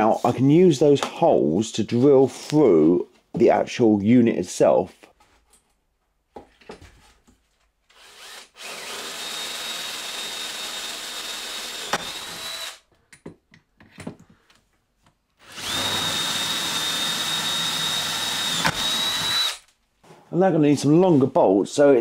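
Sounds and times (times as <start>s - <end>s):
cordless drill boring through wood: 7.9s - 12.8s, 15.4s - 19.7s
handling knocks and clicks: 13.0s - 15.2s.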